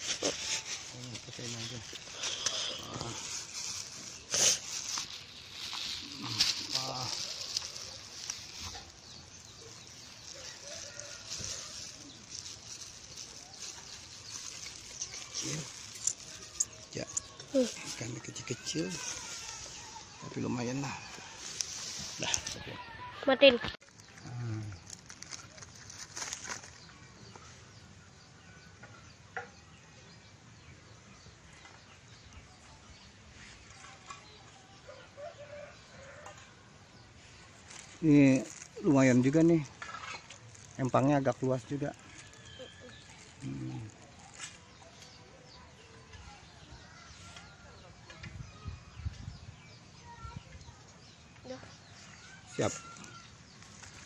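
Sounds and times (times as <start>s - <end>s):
faint outdoor ambience: 0.0s - 54.0s.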